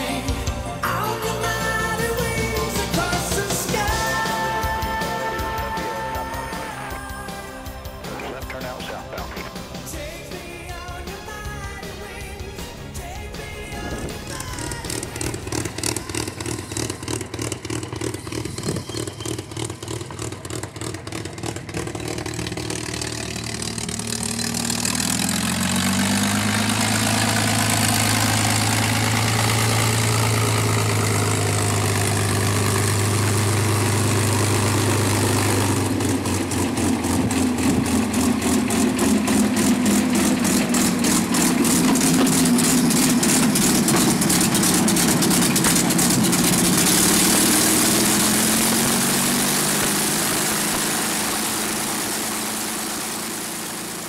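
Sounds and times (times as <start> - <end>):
aircraft piston engine running: 0.0 - 54.0.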